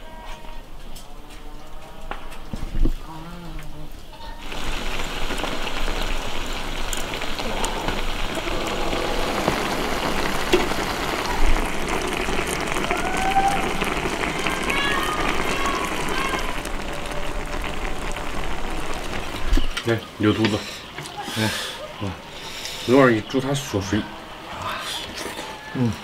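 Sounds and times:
food sizzling in a wok: 4.3s - 23.6s.

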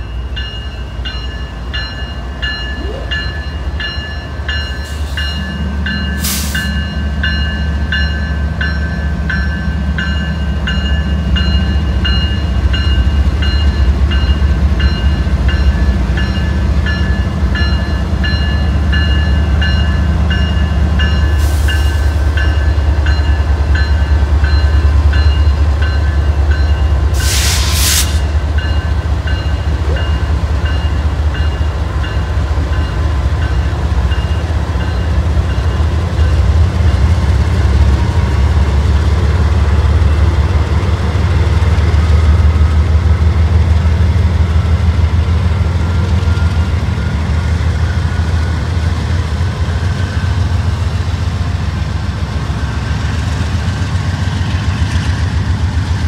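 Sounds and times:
diesel locomotives passing: 0.0s - 56.0s.

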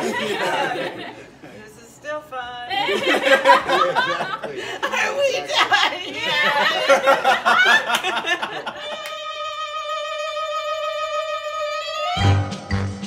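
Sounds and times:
group of people laughing: 0.0s - 1.6s, 2.7s - 9.1s
upbeat music with bass beat: 12.2s - 13.0s.

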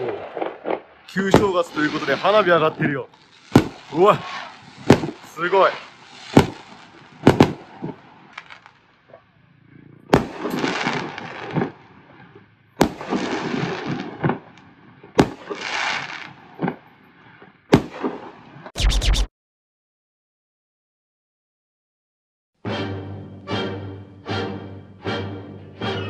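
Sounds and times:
fireworks bangs: 0.0s - 9.1s, 10.0s - 19.3s
fireworks crackling: 0.0s - 9.1s, 10.1s - 19.3s.

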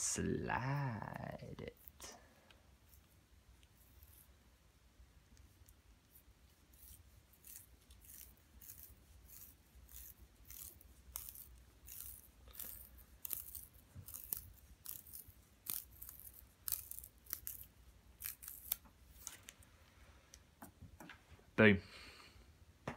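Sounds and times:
willow rod crackling as it splits: 6.8s - 19.6s.

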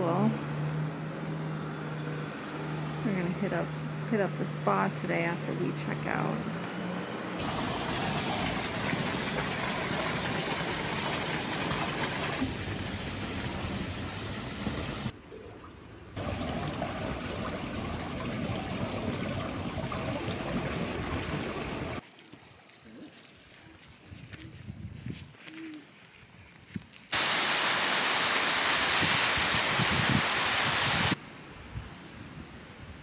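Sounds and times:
water pouring and splashing into pool: 7.4s - 22.7s, 27.1s - 31.2s.

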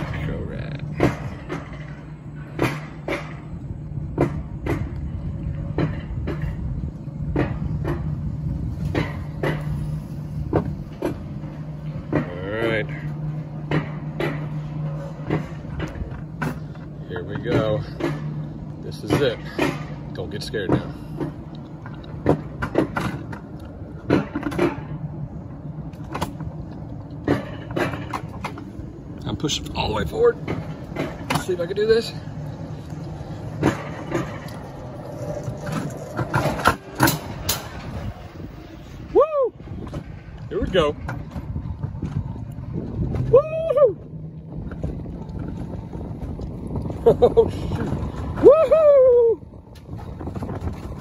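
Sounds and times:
sharp rail clacks: 0.0s - 6.7s, 7.3s - 13.0s, 25.9s - 38.3s
coaster sled rumbling on rail: 0.0s - 51.0s
low mechanical drone: 0.0s - 51.0s
sharp clunks and knocks: 0.9s - 5.1s, 7.3s - 13.0s, 13.6s - 25.1s, 27.1s - 28.8s, 30.2s - 31.8s, 32.8s - 37.9s.

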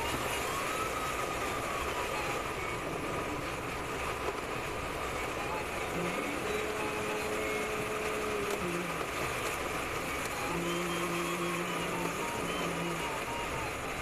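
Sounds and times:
variometer electronic tone: 10.4s - 13.7s.

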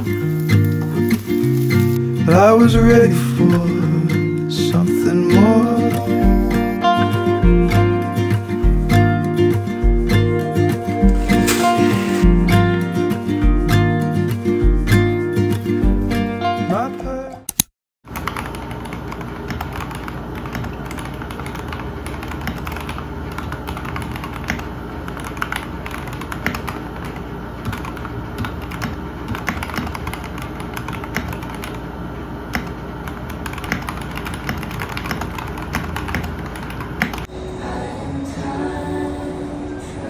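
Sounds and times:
mechanical keyboard typing: 17.5s - 31.8s, 32.5s - 37.3s.

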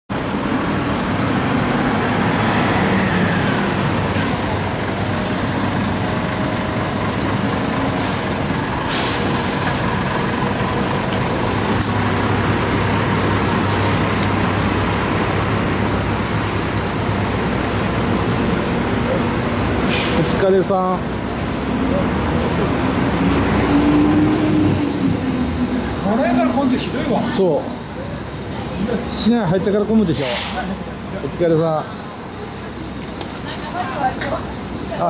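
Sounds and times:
city traffic: 0.1s - 35.0s
diesel bus engine running: 0.1s - 35.0s
air brake hisses: 7.0s - 9.5s, 19.8s - 20.4s, 30.2s - 30.8s.

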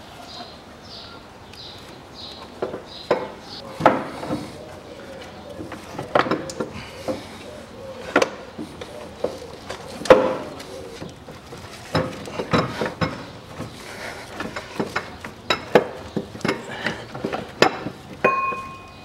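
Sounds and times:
metallic clinks and knocks: 14.4s - 19.0s
metal part ringing: 18.2s - 19.0s.

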